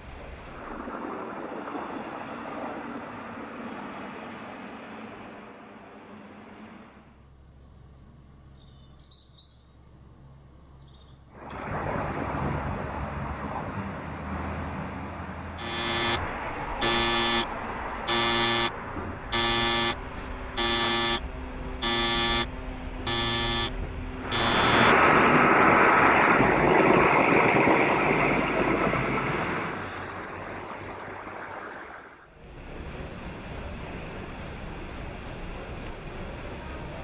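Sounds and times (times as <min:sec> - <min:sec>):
fire engine two-tone horn blasts: 0:15.6 - 0:25.0.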